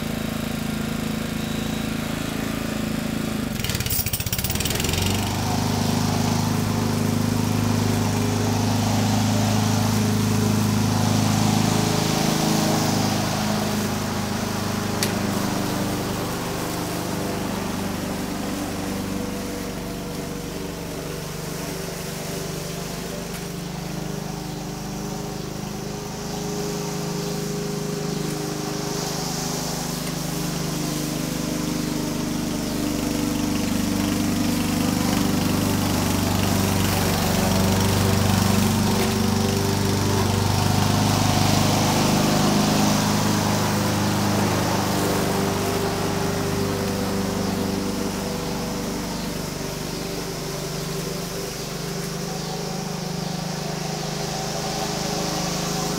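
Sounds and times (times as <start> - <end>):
lawn mower cutting grass: 0.0 - 55.9.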